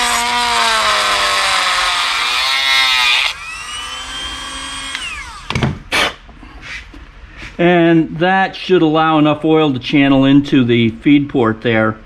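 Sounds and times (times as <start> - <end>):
rotary tool grinding metal: 0.0 - 5.5.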